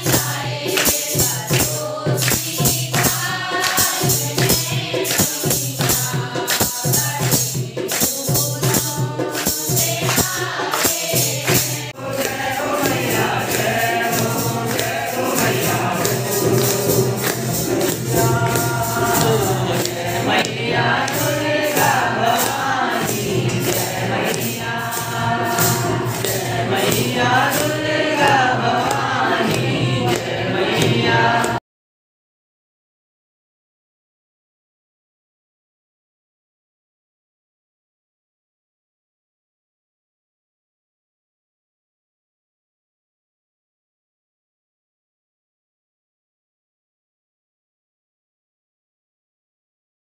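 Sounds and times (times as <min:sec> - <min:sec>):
rhythmic hand-clapping: 0:00.0 - 0:31.6
women singing devotional song: 0:00.0 - 0:31.6.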